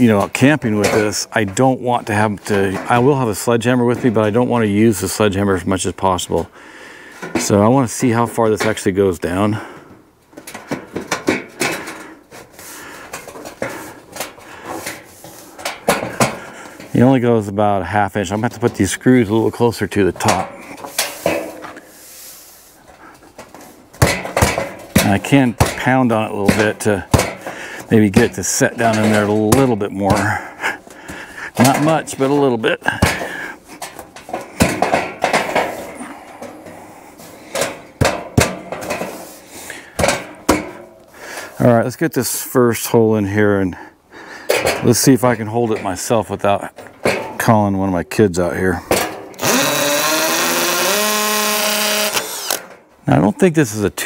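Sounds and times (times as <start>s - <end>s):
metal pipe clanking and scraping: 10.3s - 17.2s, 18.2s - 22.2s, 22.8s - 41.1s.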